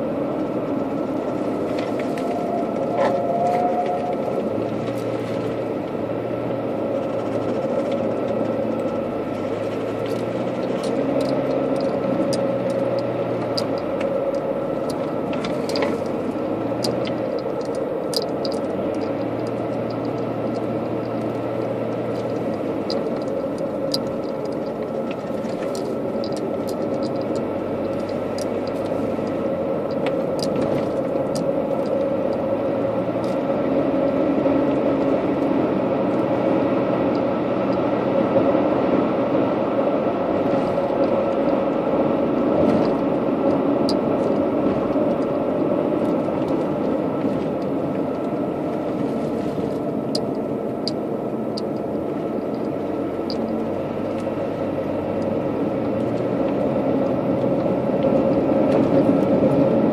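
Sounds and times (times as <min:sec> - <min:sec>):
car engine and tyre noise: 0:00.0 - 0:59.9
small ticks and clicks: 0:06.6 - 0:33.4, 0:42.6 - 0:59.9.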